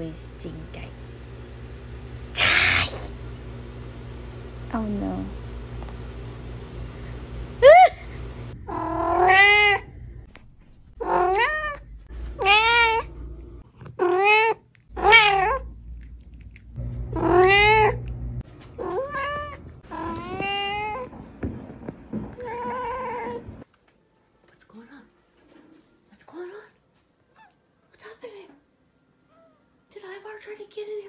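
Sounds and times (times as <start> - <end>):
cat meowing: 8.7 - 9.9, 12.4 - 13.1, 14.0 - 15.7.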